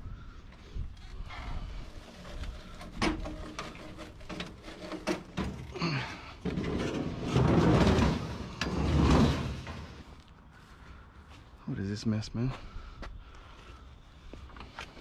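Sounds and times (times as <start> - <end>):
scraping across metal floor: 1.2 - 10.2
steel frame knocks and clatter: 2.3 - 5.7, 6.4 - 10.1.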